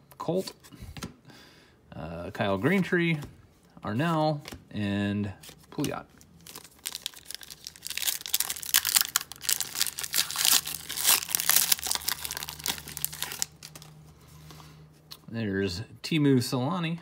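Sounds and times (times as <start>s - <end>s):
foil wrapper crinkling and tearing: 5.8s - 14.0s.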